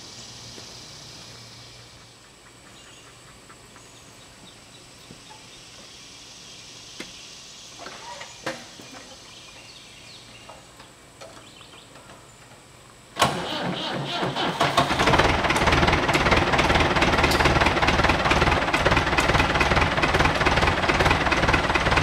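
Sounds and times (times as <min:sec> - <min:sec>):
knocks and clunks on tractor: 0:13.2 - 0:22.0.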